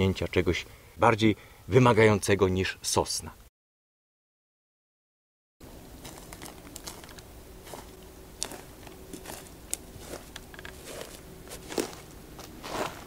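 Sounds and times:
footsteps crunching on dry lichen: 5.9 - 13.0.

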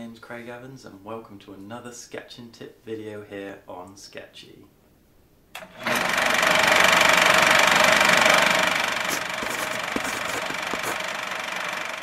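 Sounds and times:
film projector whirring and clattering: 5.6 - 12.0.

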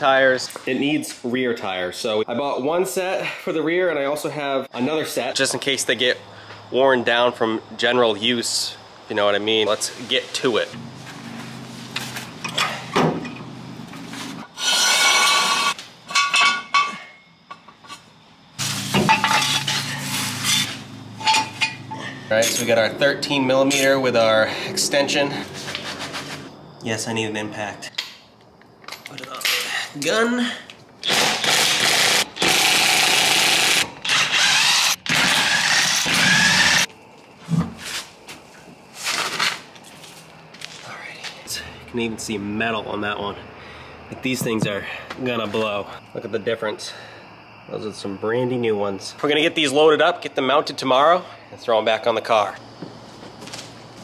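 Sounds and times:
metal scraping on concrete: 9.8 - 17.2, 18.6 - 26.6.

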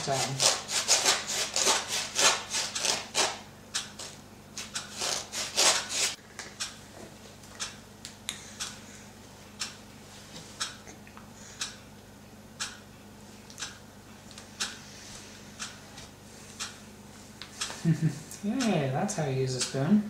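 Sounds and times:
rasping rubbing strokes: 0.1 - 3.4, 4.9 - 6.2.

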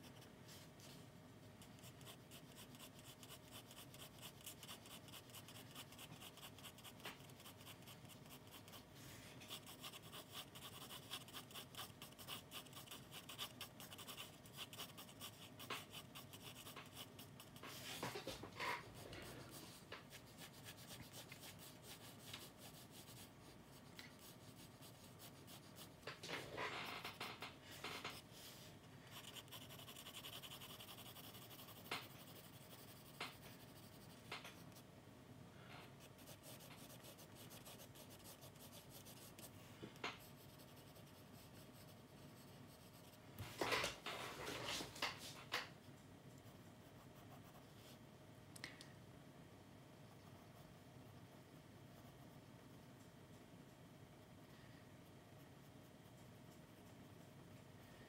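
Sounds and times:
pencil scratching on paper: 1.6 - 34.8, 35.9 - 45.2.

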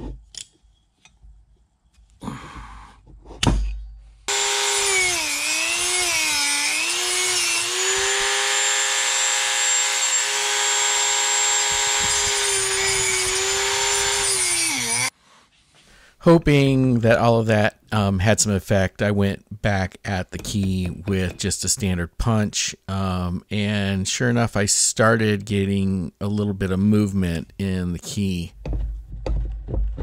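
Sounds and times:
tools clicking and knocking: 0.0 - 1.2
rotary tool whining cutting metal: 4.3 - 15.1.

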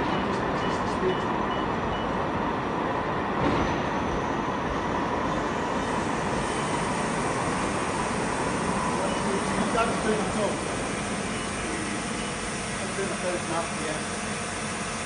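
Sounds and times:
lathe spindle running: 5.8 - 15.0.

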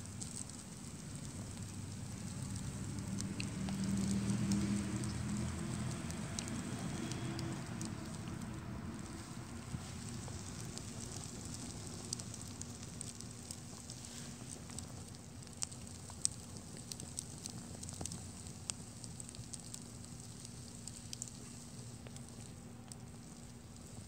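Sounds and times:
fire crackling and popping: 0.0 - 24.0
low steady rush: 0.0 - 24.0.

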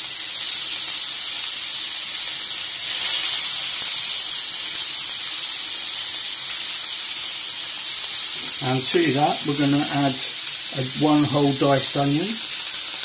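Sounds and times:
meat sizzling in a frying pan: 0.0 - 13.0.

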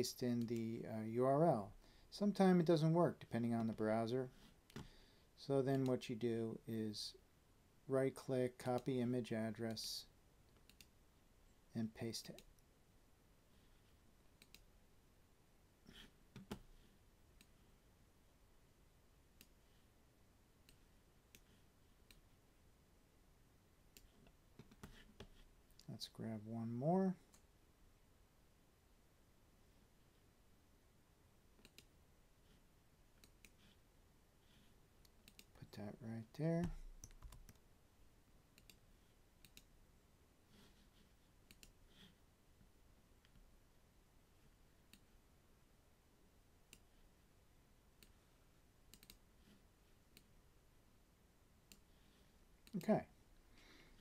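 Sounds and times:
faint mouse clicks: 0.3 - 0.8, 10.5 - 11.0, 12.2 - 12.7, 14.4 - 14.7, 17.4 - 17.6, 19.4 - 19.6, 20.6 - 22.3, 31.6 - 31.9, 33.2 - 33.7, 35.0 - 35.5, 38.5 - 38.8, 39.4 - 39.7, 41.4 - 41.8, 44.9 - 45.1, 46.7 - 47.0, 48.0 - 48.2, 48.9 - 49.2, 50.1 - 50.3, 51.7 - 51.9
mouse and keyboard clicks: 48.9 - 49.2.

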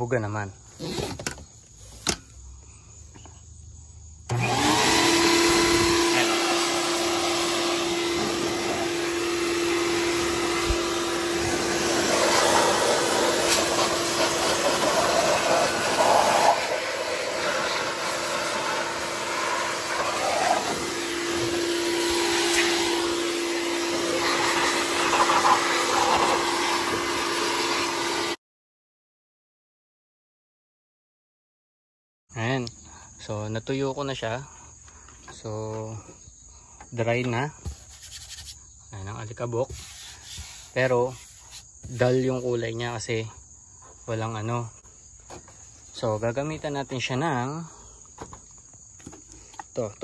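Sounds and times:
vacuum blower humming: 4.3 - 28.4.

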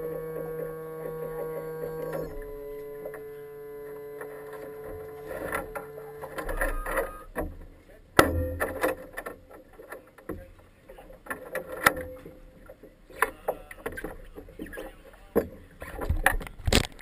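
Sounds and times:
knocks and clatter of gear: 4.2 - 14.8, 15.4 - 17.0.

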